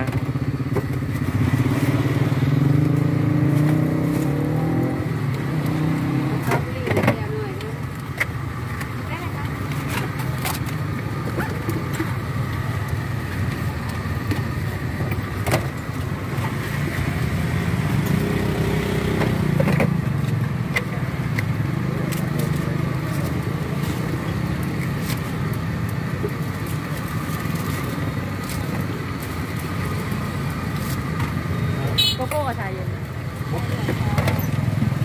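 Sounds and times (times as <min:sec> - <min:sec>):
low mechanical rumble: 0:00.0 - 0:18.2.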